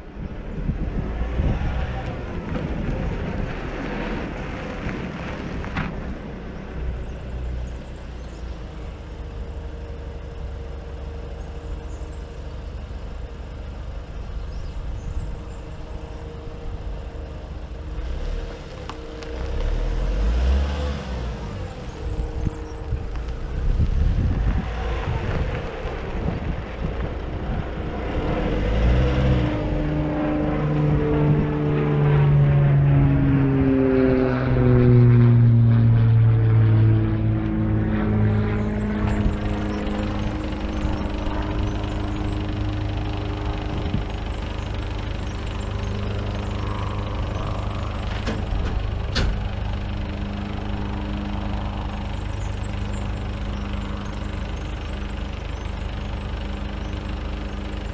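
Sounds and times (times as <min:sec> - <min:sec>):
truck engine running: 0:00.0 - 0:57.9.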